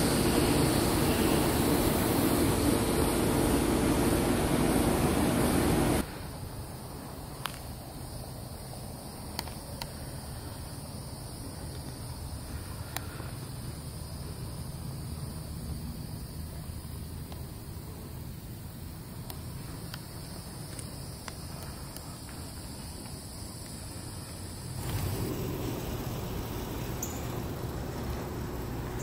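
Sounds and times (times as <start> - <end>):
machine humming with hiss: 0.0 - 7.1, 17.4 - 29.0
faint outdoor background noise: 0.0 - 29.0.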